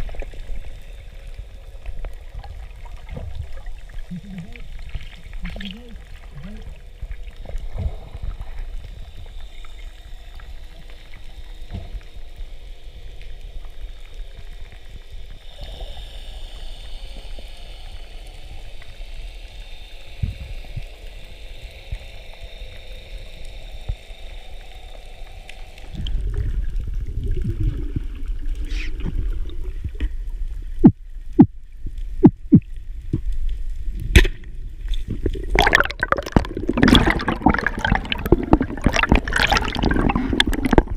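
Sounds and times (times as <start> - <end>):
underwater rumble and hiss: 0.0 - 40.9
churning water: 35.2 - 40.9.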